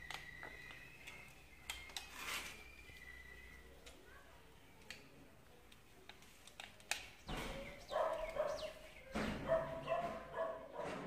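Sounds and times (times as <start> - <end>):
dog barking and yelping: 7.9 - 8.8, 9.4 - 11.0.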